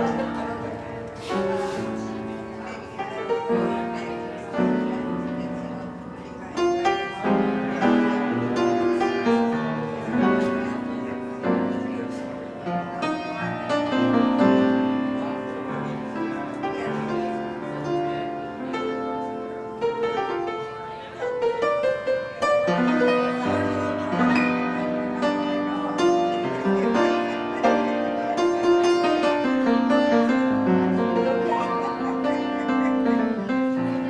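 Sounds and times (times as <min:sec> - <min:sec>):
solo piano melody: 0:00.0 - 0:34.0.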